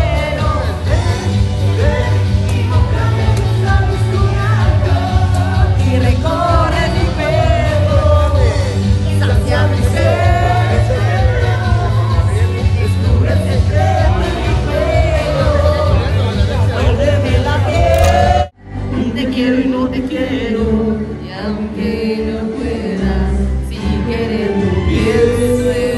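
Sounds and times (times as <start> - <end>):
backing track with heavy bass: 0.0 - 19.5
women singing into microphones: 17.6 - 25.9.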